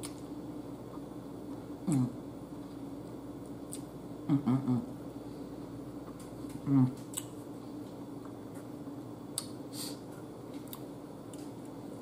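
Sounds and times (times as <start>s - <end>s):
faint low hum: 0.0s - 12.0s
person humming: 1.8s - 2.2s, 4.3s - 4.9s, 6.6s - 7.0s.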